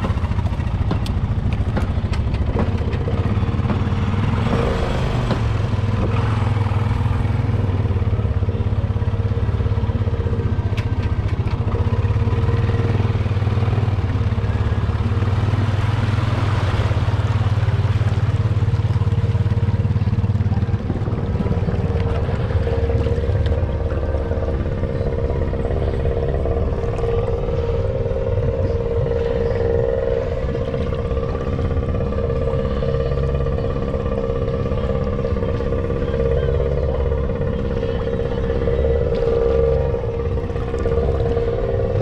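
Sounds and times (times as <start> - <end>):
atv engine running: 0.0 - 42.0
water swishing: 11.2 - 42.0.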